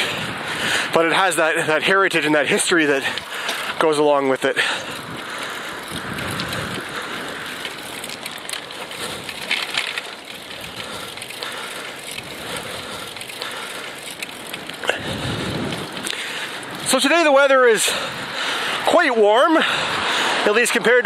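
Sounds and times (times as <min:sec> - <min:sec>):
wind and tyres hissing: 0:00.0 - 0:21.0
small clicks and rustles: 0:02.8 - 0:04.0, 0:04.6 - 0:17.2.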